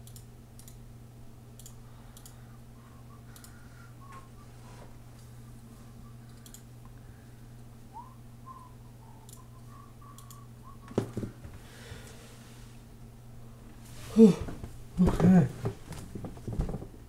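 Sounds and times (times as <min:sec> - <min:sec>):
low hum: 0:00.0 - 0:11.4
faint clicks: 0:01.6 - 0:02.4, 0:03.3 - 0:03.6, 0:06.3 - 0:07.0, 0:10.1 - 0:10.4
person whistling a tune: 0:04.0 - 0:04.5, 0:07.9 - 0:11.1.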